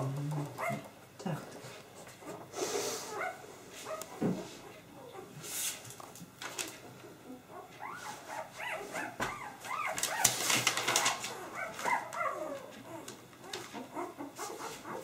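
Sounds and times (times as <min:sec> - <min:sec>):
puppies whimpering and squealing: 0:02.1 - 0:05.4, 0:07.2 - 0:15.0.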